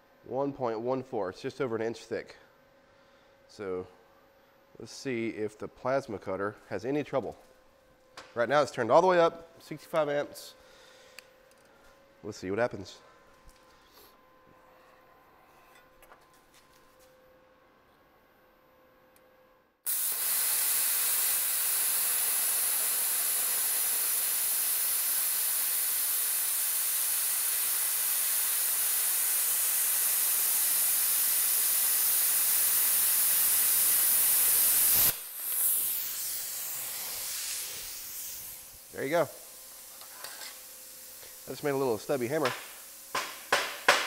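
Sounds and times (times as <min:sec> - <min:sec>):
plasma cutter hissing: 0:19.9 - 0:44.0.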